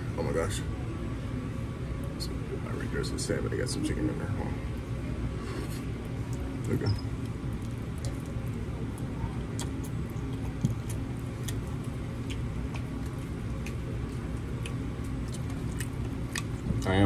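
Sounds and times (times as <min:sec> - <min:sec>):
mouth chewing: 0:05.5 - 0:17.0.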